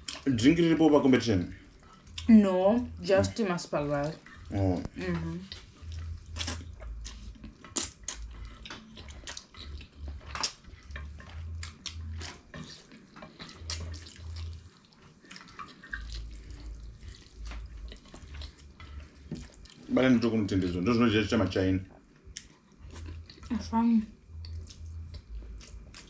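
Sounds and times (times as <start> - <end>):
low hum: 0.0 - 12.6.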